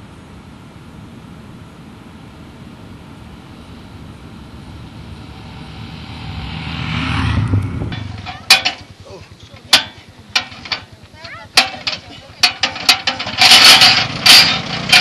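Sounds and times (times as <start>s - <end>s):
motorcycle passing by: 3.4s - 10.2s
loud sharp clacks: 11.6s - 15.0s.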